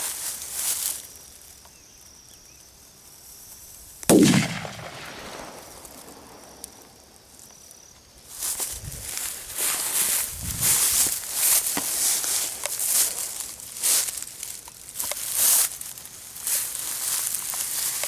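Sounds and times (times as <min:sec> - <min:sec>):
footsteps in grass: 0:00.0 - 0:01.7, 0:08.3 - 0:18.0
firecracker bang: 0:04.1 - 0:06.6.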